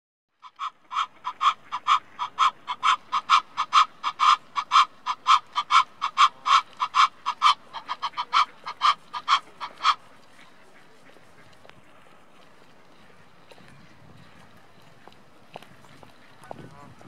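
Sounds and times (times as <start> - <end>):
goose alarm calls: 0.4 - 11.6.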